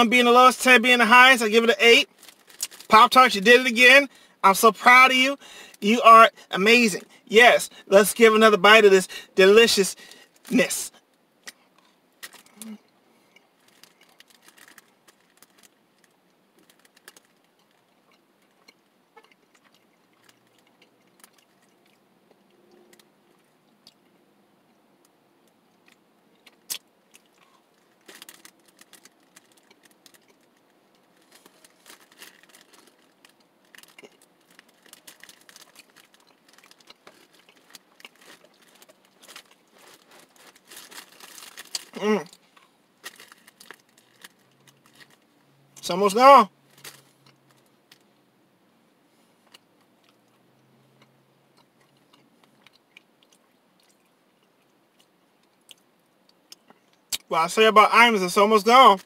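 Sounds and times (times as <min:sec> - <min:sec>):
chewing and crunching pastry: 0:02.0 - 0:03.0, 0:10.0 - 0:45.9, 0:46.6 - 0:48.2, 0:49.3 - 0:57.3.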